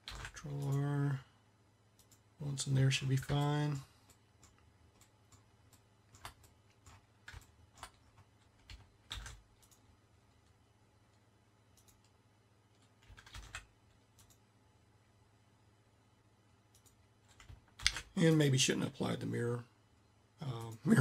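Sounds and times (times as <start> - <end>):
keyboard and mouse clicks: 0.0 - 0.9, 3.2 - 12.2, 12.8 - 14.4, 16.7 - 18.1.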